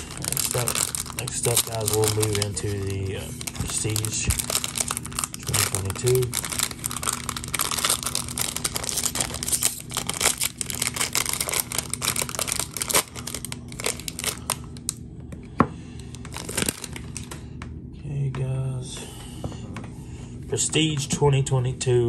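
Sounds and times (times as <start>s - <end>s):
wrapper tearing and crinkling: 0.0s - 14.9s, 16.2s - 17.4s.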